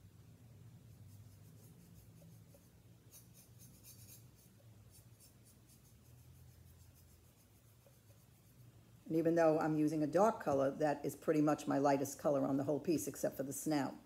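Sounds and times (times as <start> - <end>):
low steady hum: 0.0 - 14.0
paintbrush strokes on ceramic: 0.7 - 10.8.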